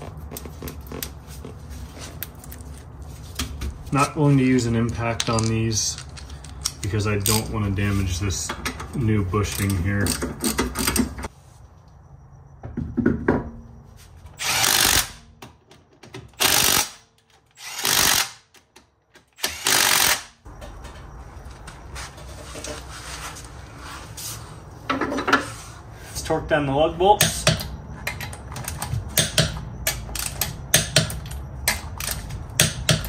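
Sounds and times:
impact wrench bursts: 14.4 - 15.2, 16.4 - 18.5, 19.4 - 20.4.

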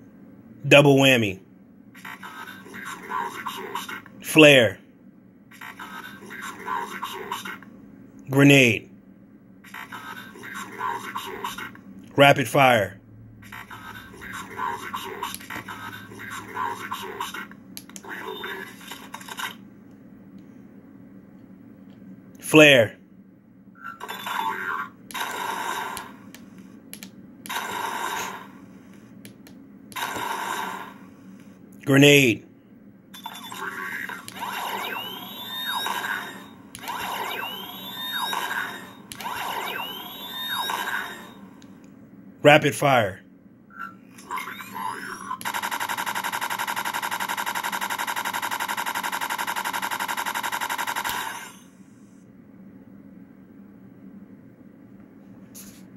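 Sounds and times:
steady low hum: 0.0 - 55.9
electronic rapid-fire gun shots: 25.1 - 26.2, 27.5 - 28.6, 30.0 - 31.1, 33.9 - 41.4, 45.4 - 51.6.

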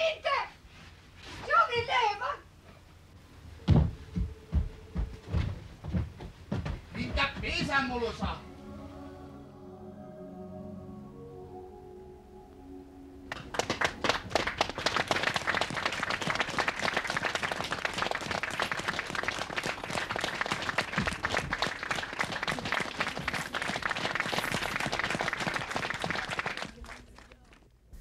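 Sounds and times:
audience applauding: 13.3 - 27.6.

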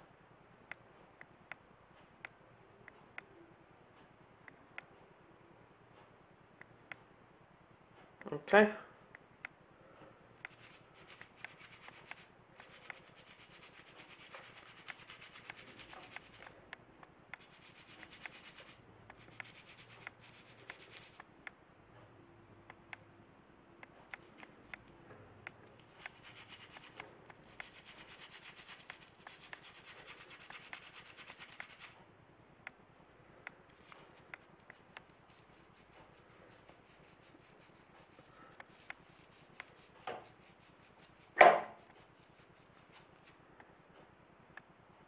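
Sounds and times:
brush scrubbing: 10.4 - 16.6, 17.4 - 21.2, 25.6 - 32.0, 33.7 - 43.4
sharp knock: 41.4 - 41.8.

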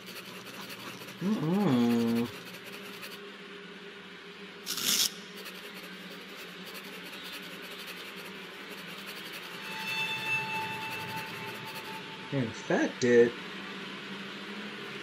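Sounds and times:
pen scratching on paper: 0.0 - 3.2, 4.8 - 9.6, 10.9 - 12.0
low steady hum: 0.0 - 15.0.

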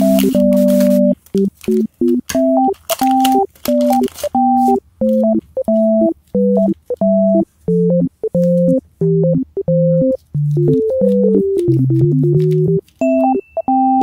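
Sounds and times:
plastic wrap crinkling: 0.0 - 7.0, 10.2 - 13.1
bouncy synthesizer melody: 0.0 - 14.0.

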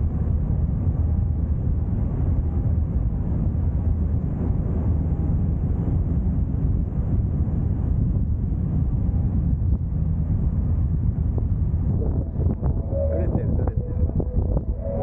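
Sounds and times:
low rumble: 0.0 - 15.0
wind rushing over microphone: 0.0 - 15.0.

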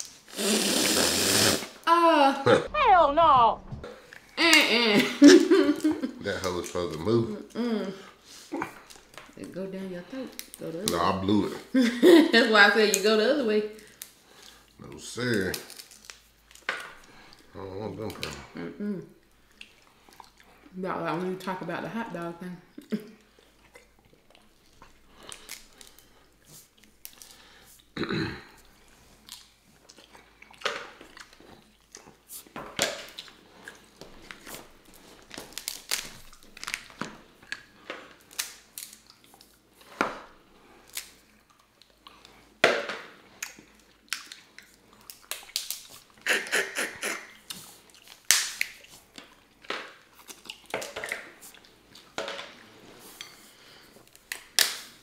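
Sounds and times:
chewing: 8.2 - 9.6, 19.1 - 20.7, 22.7 - 42.6, 43.2 - 54.7
crab shells cracking: 13.8 - 17.4, 35.2 - 39.5, 40.8 - 46.2, 48.0 - 51.4.

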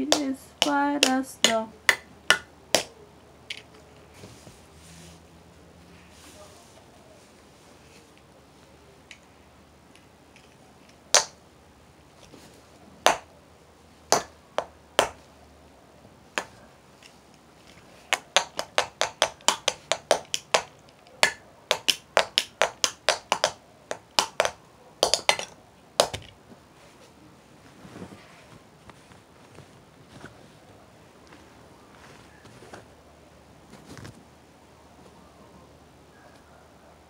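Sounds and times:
child drumming: 18.1 - 26.2.

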